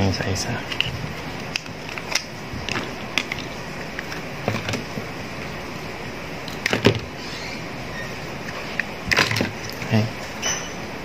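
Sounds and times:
plastic parts clicking and knocking: 0:01.5 - 0:05.0, 0:06.5 - 0:07.1, 0:08.8 - 0:10.0.

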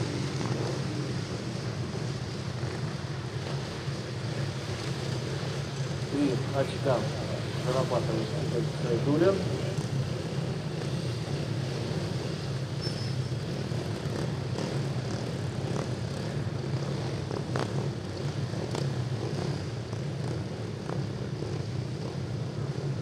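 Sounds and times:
low engine drone: 0:00.0 - 0:13.1.

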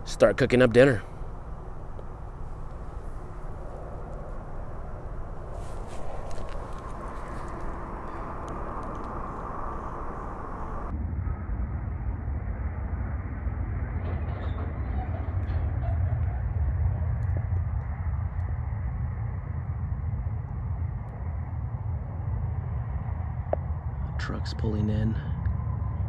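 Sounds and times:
motor vehicle engine rumble: 0:00.8 - 0:10.9.

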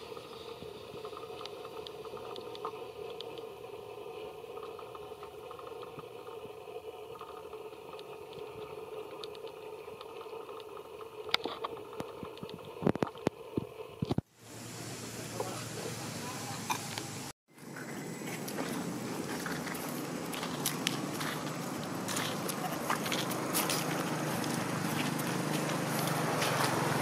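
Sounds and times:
outdoor background noise: 0:00.0 - 0:27.0.

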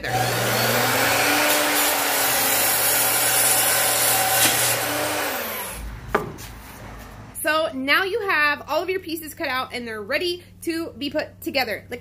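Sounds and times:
miter saw cutting wood: 0:00.0 - 0:07.3.

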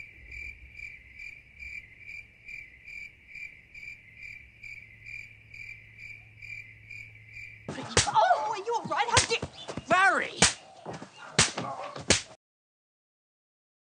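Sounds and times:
crickets chirping: 0:00.0 - 0:12.0
speech: 0:07.7 - 0:10.5.

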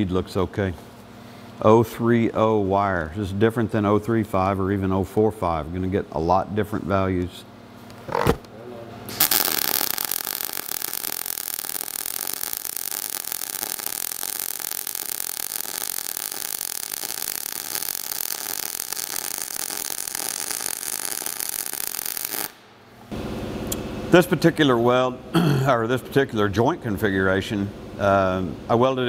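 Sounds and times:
welding arc crackling and popping: 0:09.1 - 0:22.6.

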